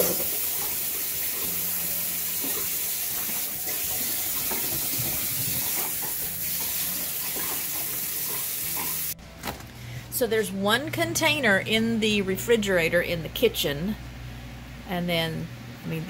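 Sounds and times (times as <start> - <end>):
running water rushing: 0.0 - 9.2.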